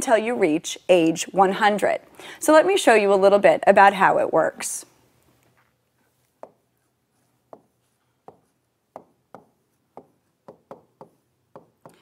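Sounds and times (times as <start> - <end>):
stylus tapping on touchscreen: 6.4 - 6.6, 7.5 - 12.0.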